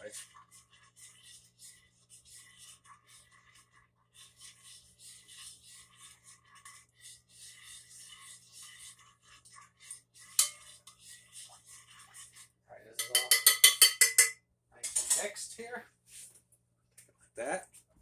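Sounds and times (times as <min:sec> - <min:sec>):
spoon scraping pot: 0:00.0 - 0:15.4
spoon clink: 0:13.0 - 0:15.2.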